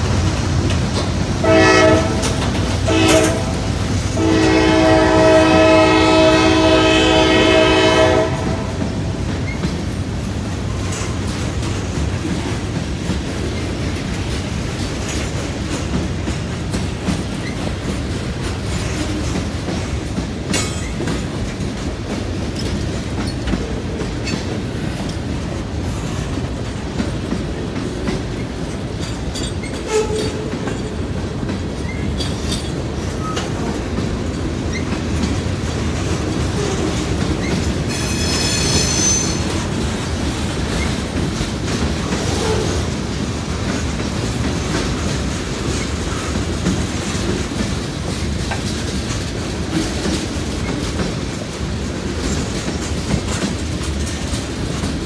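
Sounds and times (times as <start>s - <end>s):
locomotive horn blast: 1.4s - 8.8s, 29.8s - 30.5s, 37.9s - 39.4s.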